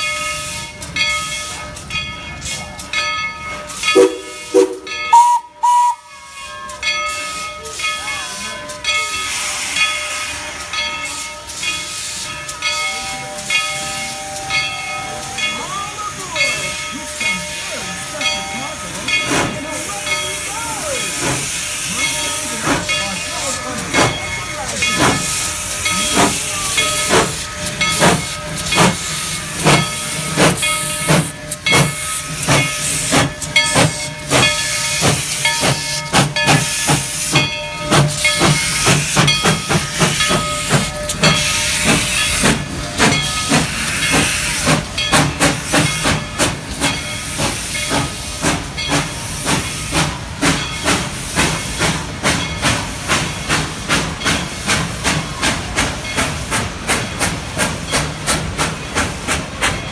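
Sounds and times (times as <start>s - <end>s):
steam locomotive chuffing: 0.0s - 59.9s
hissing steam: 3.6s - 6.3s, 7.1s - 59.9s
steady whistle tone: 4.0s - 6.1s.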